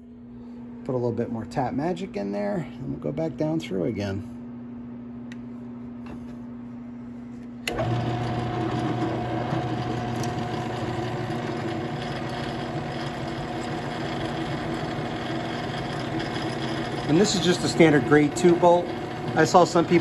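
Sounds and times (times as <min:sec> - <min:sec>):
drill press humming: 0:07.6 - 0:20.0
drill bit cutting steel: 0:07.7 - 0:20.0.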